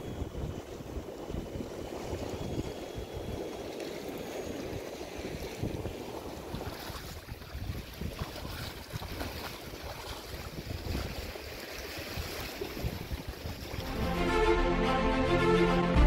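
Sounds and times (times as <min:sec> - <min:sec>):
wind buffeting microphone: 0:00.0 - 0:13.9
seawater splashing: 0:00.9 - 0:14.3.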